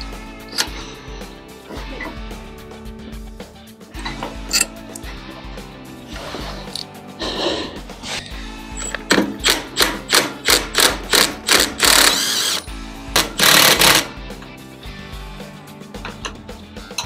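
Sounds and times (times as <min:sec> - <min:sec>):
impact driver hammering on bolt: 0:09.0 - 0:12.2.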